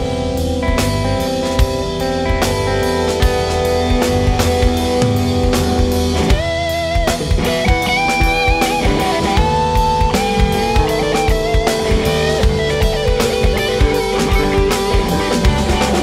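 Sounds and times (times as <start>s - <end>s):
bass guitar: 0.0s - 16.0s
drum kit: 0.0s - 16.0s
electric guitar lead notes: 0.0s - 16.0s.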